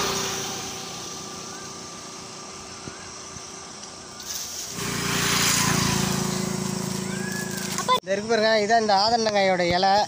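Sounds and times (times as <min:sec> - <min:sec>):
motor vehicle hum on road: 0:00.0 - 0:08.0.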